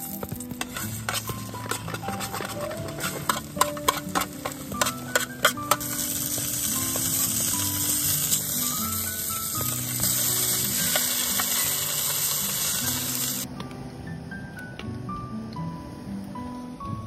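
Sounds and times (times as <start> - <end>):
bacon sizzling: 0.0 - 13.5
metal chopsticks scraping a tin: 0.6 - 6.3.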